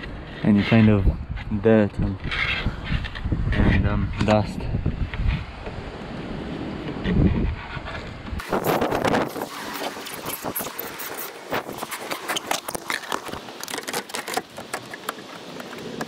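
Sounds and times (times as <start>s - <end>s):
plastic panel clicks and scraping: 9.8s - 16.0s.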